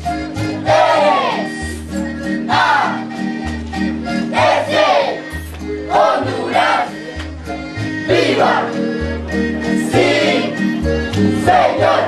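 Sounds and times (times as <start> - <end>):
folk dance music: 0.0 - 12.0.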